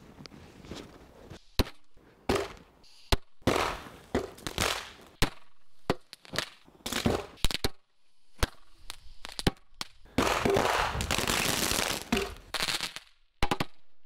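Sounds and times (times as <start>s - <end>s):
firecrackers banging: 3.4s - 7.6s, 8.4s - 13.0s.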